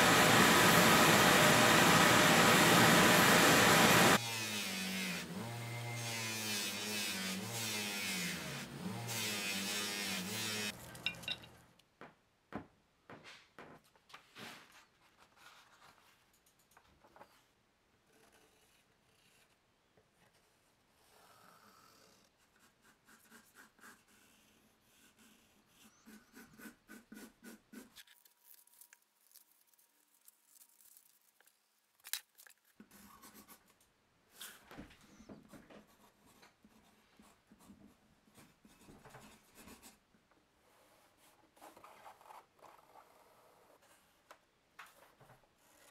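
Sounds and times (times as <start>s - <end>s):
pencil scratching on paper: 18.0s - 28.1s, 35.8s - 40.0s, 40.6s - 44.2s, 44.9s - 45.9s.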